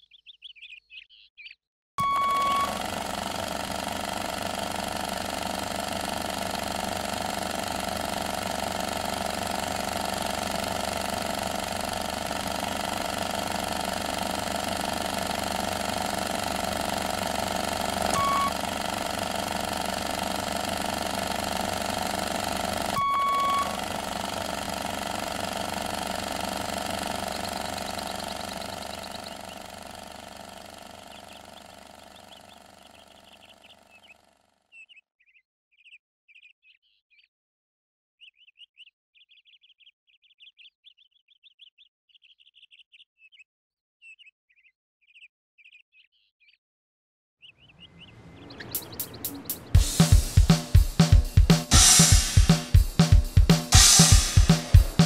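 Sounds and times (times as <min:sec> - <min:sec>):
short beeps: 0:02.0 - 0:02.7, 0:18.1 - 0:18.6, 0:23.0 - 0:23.8
dense electronic hum: 0:10.2 - 0:31.4, 0:47.8 - 0:55.0.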